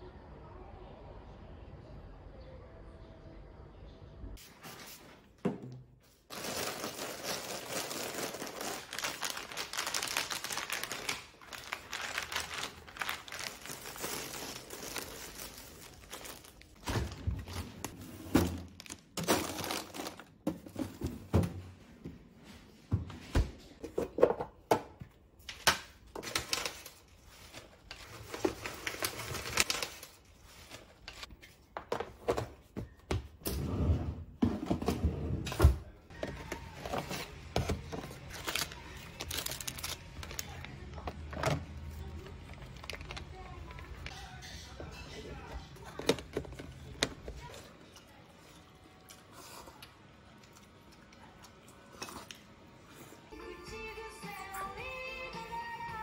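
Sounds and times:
plastic packaging crinkling: 6.3 - 18.0, 18.6 - 20.4, 26.2 - 31.3, 36.9 - 44.5
packs knocking into drawer: 16.8 - 21.6.

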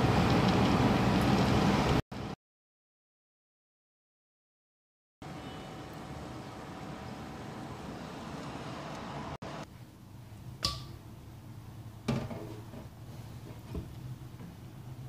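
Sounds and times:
liquid boiling in a pot: 0.0 - 2.0, 5.7 - 15.0
metal pot clinking against sink: 10.6 - 11.0.

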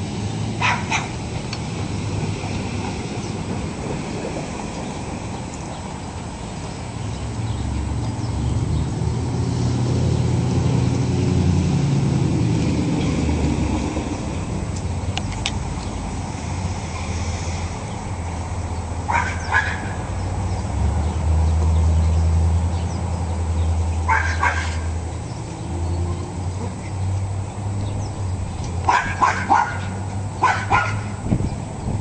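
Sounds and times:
dog barking: 0.6 - 1.2, 19.1 - 20.1, 24.1 - 24.9, 28.9 - 31.2.

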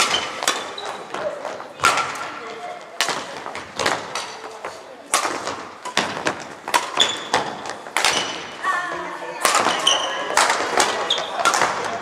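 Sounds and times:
voices in background: 0.0 - 6.1, 8.1 - 12.0
rackets striking shuttlecock: 0.0 - 8.6, 9.4 - 12.0.

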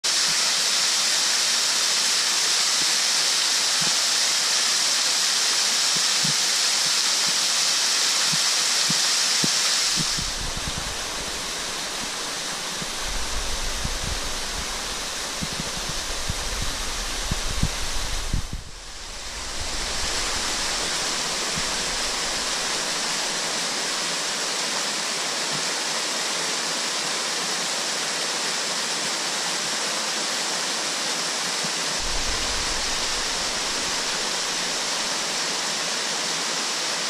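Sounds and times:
waterfall hissing: 0.0 - 37.0
wind buffeting microphone: 10.0 - 23.4, 32.0 - 35.0
water splashing: 32.0 - 35.2.

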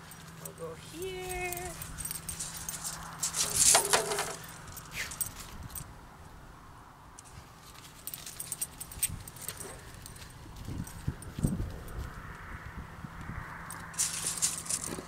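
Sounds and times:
tape measure metallic rattle: 0.0 - 5.9, 13.7 - 15.0.

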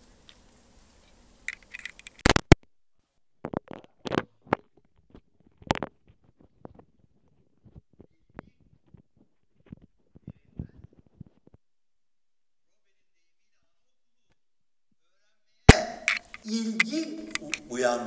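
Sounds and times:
clicks and scrapes: 1.0 - 2.6, 16.0 - 16.5.

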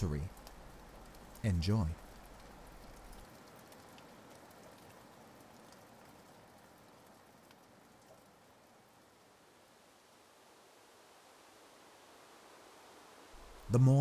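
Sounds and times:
faint steady hiss: 0.0 - 14.0
faint clicks: 0.2 - 8.3.

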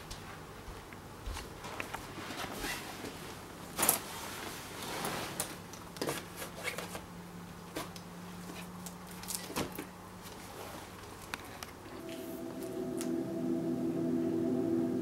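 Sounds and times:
clicks and rustles of bag: 7.7 - 11.8
footsteps: 12.0 - 13.2.

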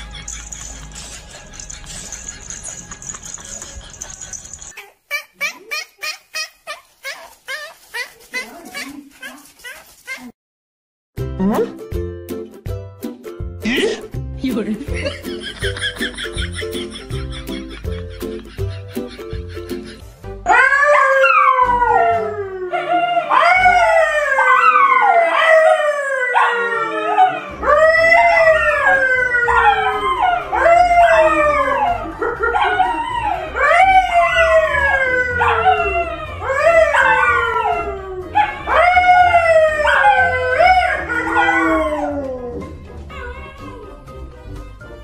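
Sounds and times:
dogs howling: 20.5 - 44.0.

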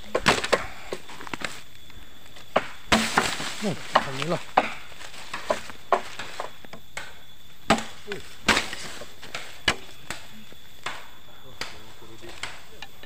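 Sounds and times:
blade chopping bamboo: 2.5 - 7.1, 7.7 - 10.2.

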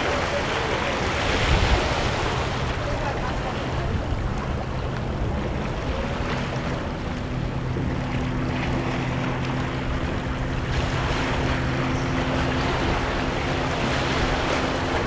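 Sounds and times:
waves washing against rocks: 0.0 - 6.9
motorboat engine droning: 0.0 - 15.0
wind on the microphone: 0.9 - 15.0.

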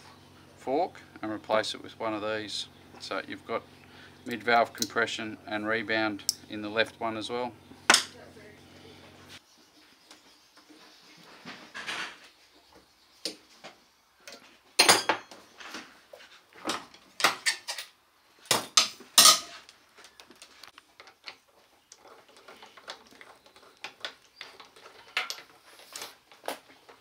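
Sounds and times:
metal parts clinking: 23.9 - 26.6.

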